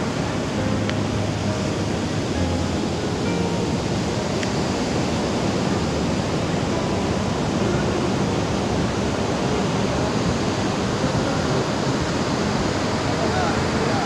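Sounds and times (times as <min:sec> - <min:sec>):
ocean surf breaking: 0:00.0 - 0:14.0.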